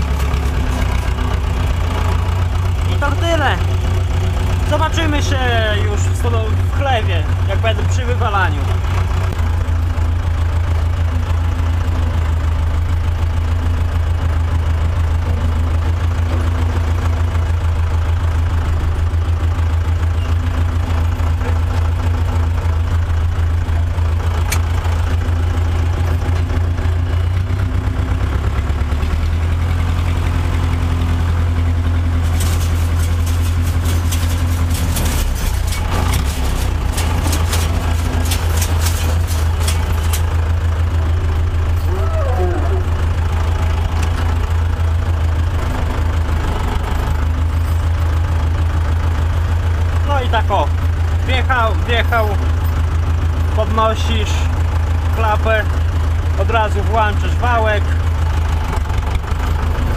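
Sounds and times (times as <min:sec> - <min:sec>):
tractor engine droning: 0:00.0 - 0:59.9
clattering rattle: 0:32.0 - 0:40.6.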